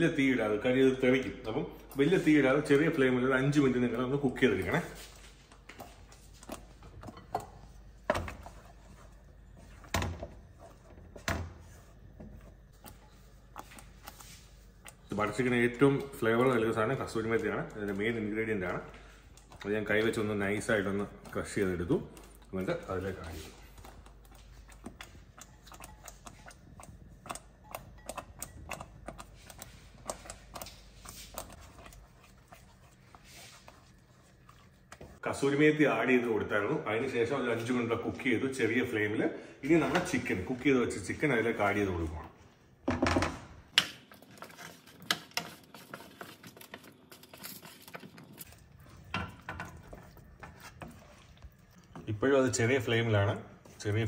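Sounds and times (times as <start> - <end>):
wooden spatula stirring sauce: 0.4 - 35.6, 44.0 - 54.0.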